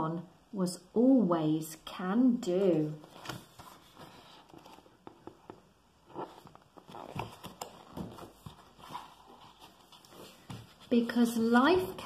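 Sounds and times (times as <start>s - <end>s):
paper pages rustling: 3.0s - 12.0s.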